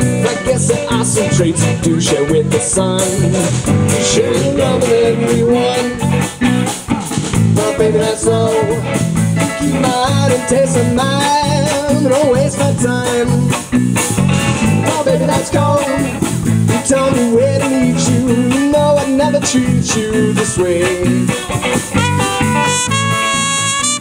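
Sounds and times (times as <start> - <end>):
live rock band playing: 0.0 - 24.0.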